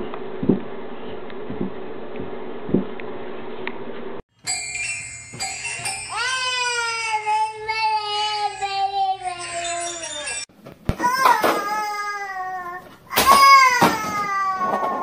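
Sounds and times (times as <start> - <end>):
toy piano notes: 4.4 - 10.5
child singing: 6.1 - 10.5.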